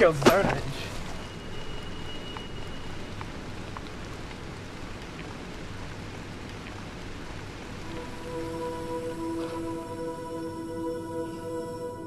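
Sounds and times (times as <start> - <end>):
outdoor ambience hiss: 0.0 - 12.0
sustained music tones: 7.7 - 12.0.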